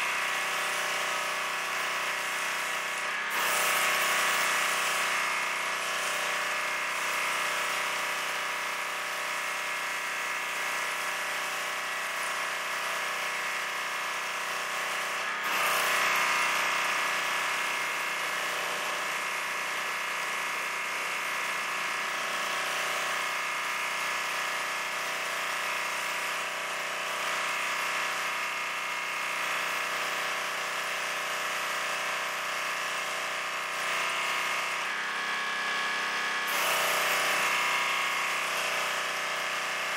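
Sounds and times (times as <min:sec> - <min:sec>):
gas engine running: 0:33.6 - 0:39.9.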